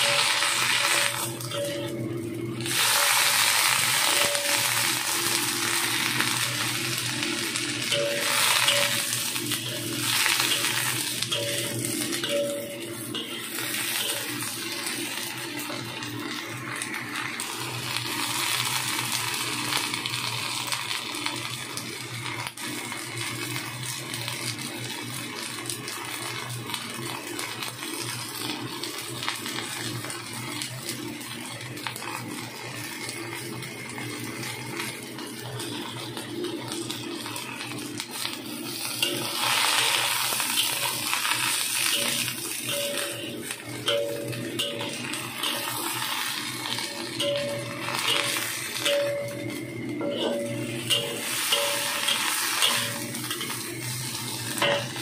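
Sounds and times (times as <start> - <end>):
vegetables sizzling in a wok: 0.0 - 55.0
metal spatula stirring: 7.8 - 14.5.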